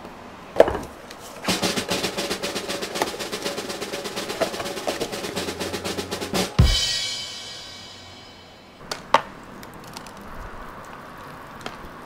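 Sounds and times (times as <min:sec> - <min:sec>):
snare drum roll: 0:01.4 - 0:08.8
sharp knock: 0:01.5 - 0:08.8.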